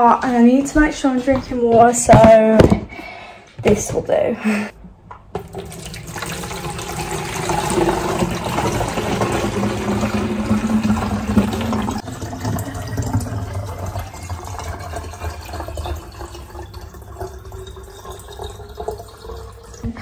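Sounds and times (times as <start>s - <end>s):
water pouring into plastic bottle: 5.4s - 20.0s.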